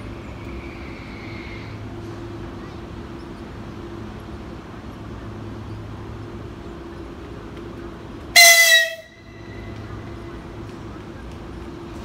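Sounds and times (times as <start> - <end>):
electric train horn toot: 8.3 - 9.7.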